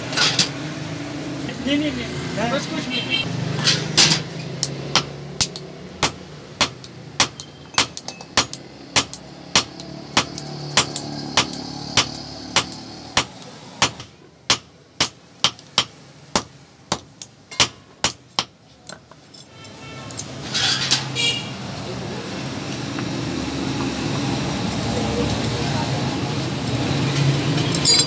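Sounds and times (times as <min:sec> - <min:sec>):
hammer striking iron on anvil: 0:03.6 - 0:18.6.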